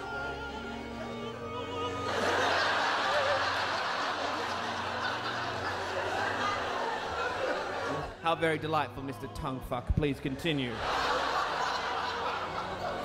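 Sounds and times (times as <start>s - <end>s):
background music wavering notes: 0.0s - 13.0s
audience laughing: 1.7s - 8.2s, 10.3s - 13.0s.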